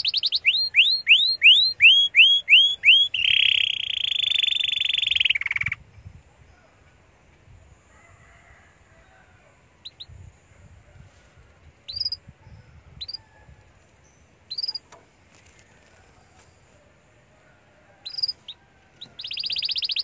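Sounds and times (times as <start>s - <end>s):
canary chirping: 0.0s - 5.8s, 11.9s - 13.2s, 14.2s - 15.0s, 18.0s - 20.0s.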